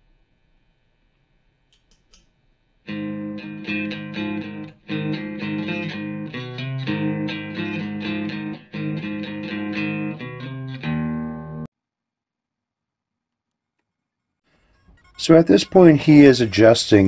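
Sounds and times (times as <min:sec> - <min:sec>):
electric guitar riff: 0:02.9 - 0:11.7.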